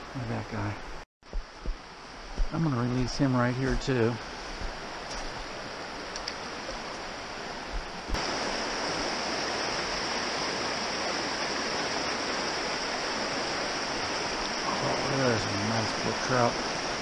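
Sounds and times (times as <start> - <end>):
stream rushing over rocks: 0.6 - 17.0.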